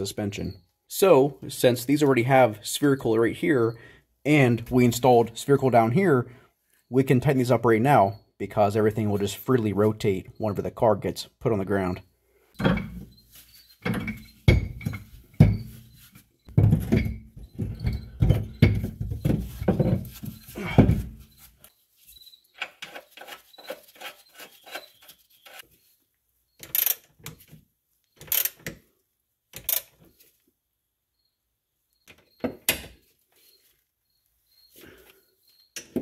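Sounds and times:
metal knocks and clunks: 12.6 - 13.2, 13.8 - 15.8, 16.5 - 21.2
sharp ratchet rasps: 26.6 - 27.0, 28.2 - 28.6
hand ratchet clicking: 28.2 - 28.7.

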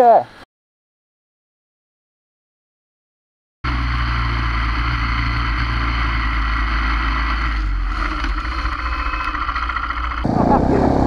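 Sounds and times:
motorcycle engine running: 3.7 - 11.0.

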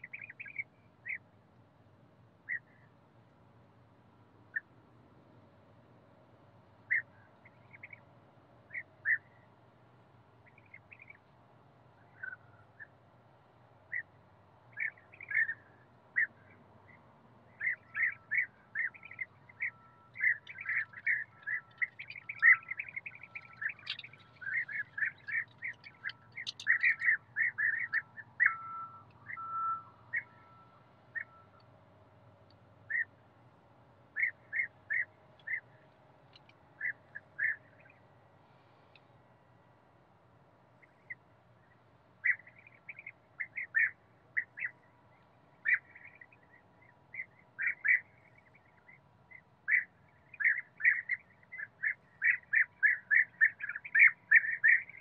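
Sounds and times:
bee-eaters calling: 0.0 - 1.2, 14.7 - 16.4, 17.6 - 30.5, 32.9 - 33.1, 34.2 - 35.6, 36.8 - 37.9, 42.2 - 44.7, 45.6 - 46.4, 47.1 - 48.9, 49.7 - 55.0.

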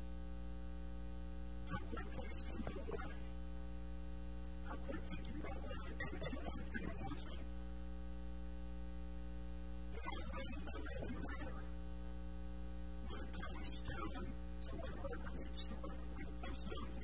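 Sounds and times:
electrical mains hum: 0.0 - 17.0
faint irregular sound: 1.6 - 3.4, 4.4 - 7.5, 13.0 - 17.0.

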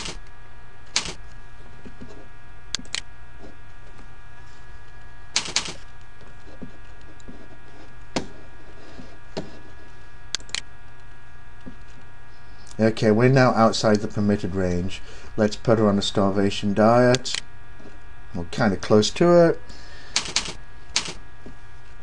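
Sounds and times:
keyboard and mouse clicks: 2.8 - 3.0, 10.4 - 10.6.

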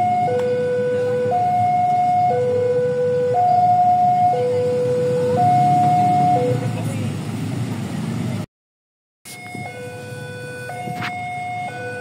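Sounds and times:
two-tone level-crossing alarm: 0.0 - 6.6, 9.3 - 12.0
low rumble of road traffic: 0.0 - 8.5, 9.3 - 12.0.

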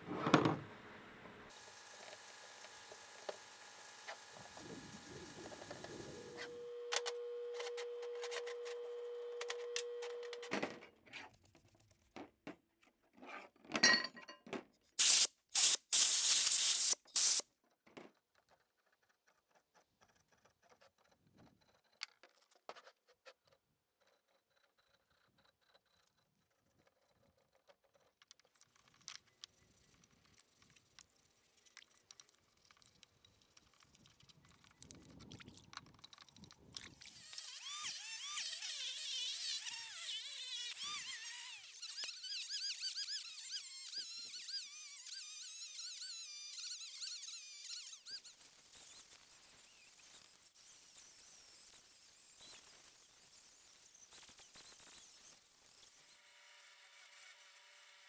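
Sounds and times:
metal parts scraping and clinking: 13.7 - 14.6
loud hissing bursts: 15.0 - 17.4.

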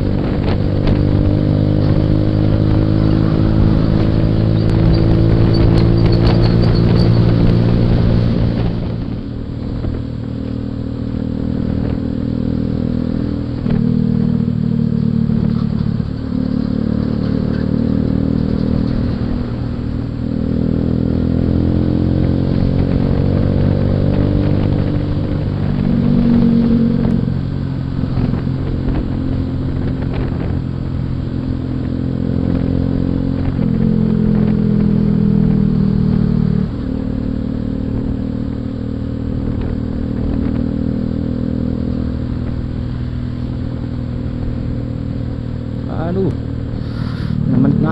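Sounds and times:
motorcycle engine revving: 0.0 - 47.9.

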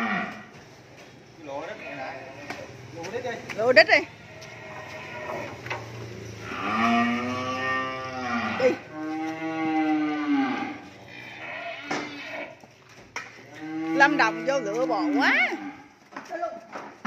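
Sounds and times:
cow mooing: 0.0 - 0.5, 4.2 - 5.7, 6.4 - 12.6, 13.4 - 15.9.

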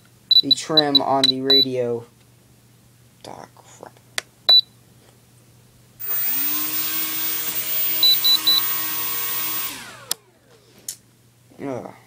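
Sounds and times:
electric motor whining: 6.0 - 10.4
transmitter beeps: 7.6 - 8.8
click: 10.0 - 10.2.

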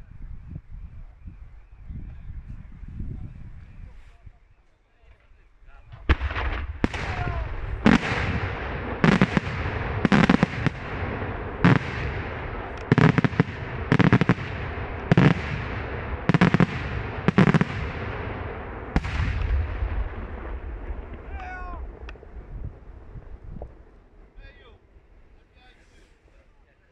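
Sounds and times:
low rumbling echo: 5.7 - 25.6
firework shells bursting: 6.0 - 21.4.

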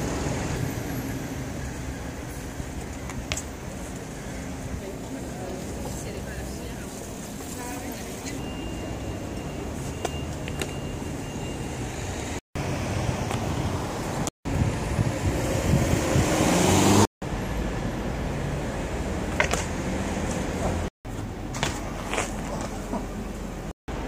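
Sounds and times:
traffic rumble: 0.0 - 24.0
vehicle passing: 15.2 - 17.1.

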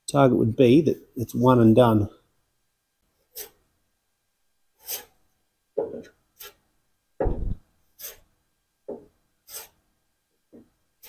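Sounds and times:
dull thud: 7.2 - 7.6.

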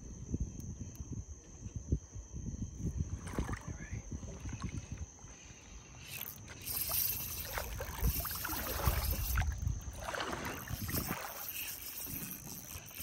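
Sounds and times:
wind rumble on microphone: 0.0 - 13.0
water sloshing and splashing: 3.1 - 5.5, 6.2 - 13.0.

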